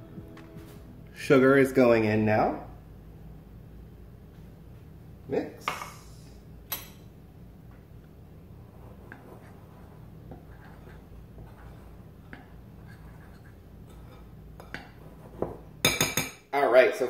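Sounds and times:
utensil scratching in glass bowl: 8.7 - 12.1, 12.7 - 14.3.

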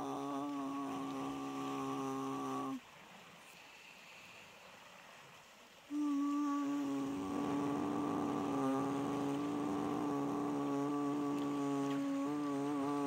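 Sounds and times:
faint steady hiss: 0.0 - 13.0
lower steady tone: 5.9 - 13.0.

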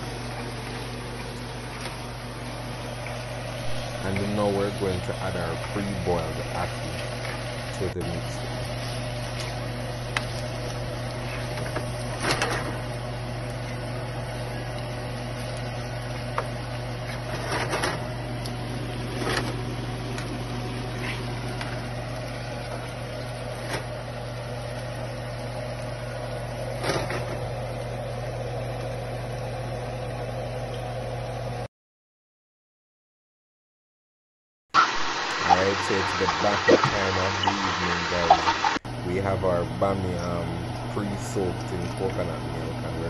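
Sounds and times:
steady low hum: 0.0 - 30.4, 35.4 - 43.0.

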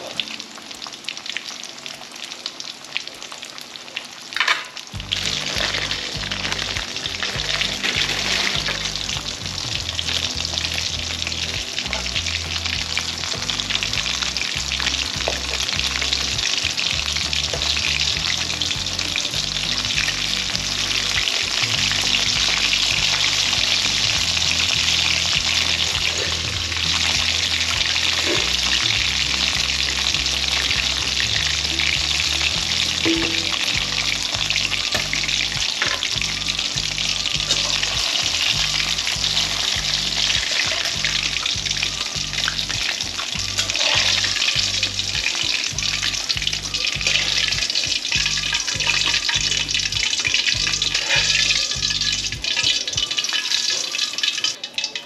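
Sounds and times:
food sizzling in hot oil: 0.0 - 55.0.

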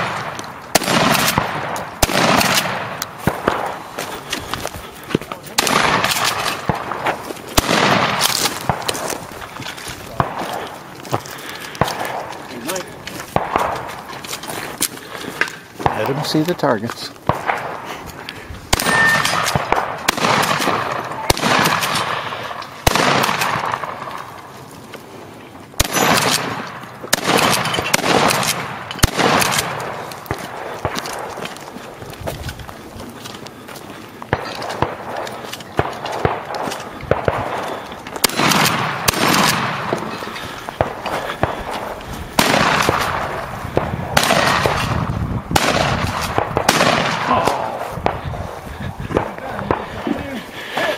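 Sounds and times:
gunshot echo: 0.0 - 3.8, 5.6 - 9.2, 11.7 - 13.9, 18.7 - 24.2, 25.8 - 31.4, 34.3 - 48.2
rifle shots: 0.0 - 4.2, 5.5 - 9.5, 10.1 - 14.2, 18.7 - 24.4, 25.8 - 31.7, 34.3 - 48.5
faint cracks: 0.0 - 44.9.

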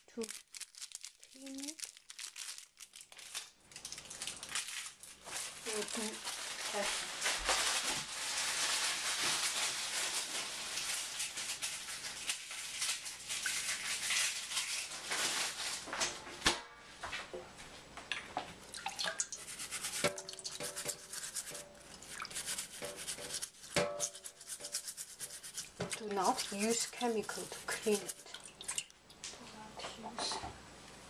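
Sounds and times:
water dripping and splashing: 3.2 - 7.7, 10.1 - 14.8, 18.0 - 29.4
toothbrush scrubbing orange peel: 11.2 - 14.9, 19.4 - 28.3.

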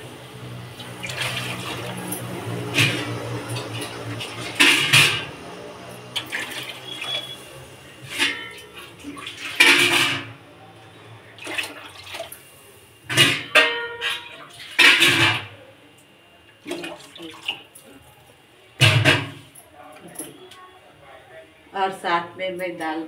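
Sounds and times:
water splashing and pouring: 0.7 - 5.3, 6.1 - 10.3, 11.4 - 12.4, 16.6 - 17.8
metal pots clanking: 0.8 - 5.4, 8.0 - 10.4, 13.1 - 15.5.

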